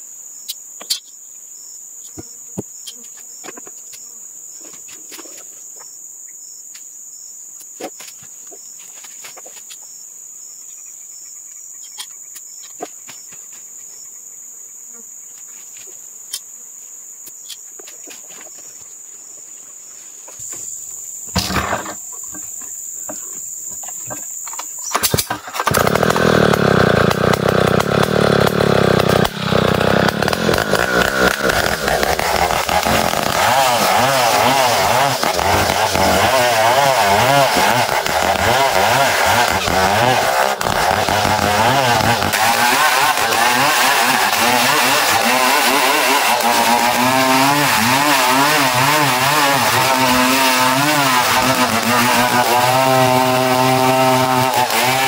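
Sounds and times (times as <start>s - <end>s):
insect chirring: 9.6s - 15.5s, 18.5s - 25.0s
chainsaw running: 20.4s - 55.0s.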